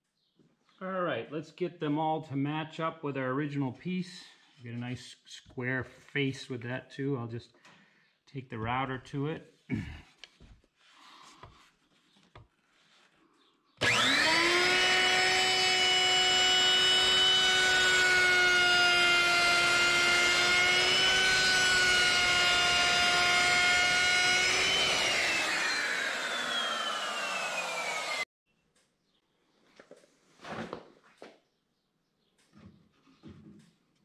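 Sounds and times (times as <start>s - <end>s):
router trimming plywood: 13.8s - 28.3s
router whining: 13.8s - 28.3s.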